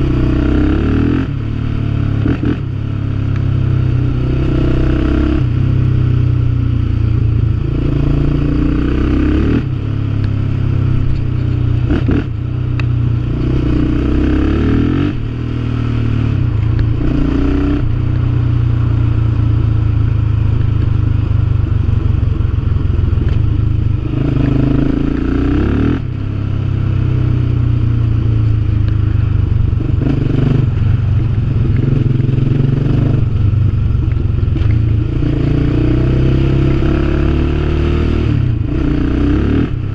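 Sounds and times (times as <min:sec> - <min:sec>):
quad bike engine revving: 0:00.0 - 0:01.4, 0:04.2 - 0:05.5, 0:07.7 - 0:09.8, 0:13.2 - 0:15.3, 0:24.1 - 0:26.0, 0:31.8 - 0:33.4, 0:34.6 - 0:39.9.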